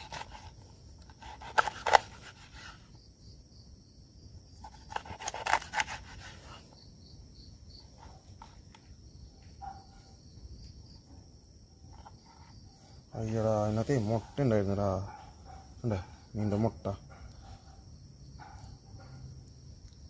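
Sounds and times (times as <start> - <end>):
knife cutting fish on wooden board: 0.0 - 2.8, 4.6 - 6.6
crickets chirping: 0.0 - 20.0.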